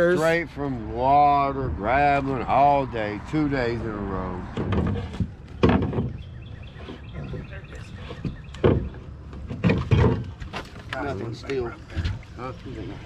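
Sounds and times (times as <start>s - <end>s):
wood knocking against metal hull: 4.5s - 11.0s.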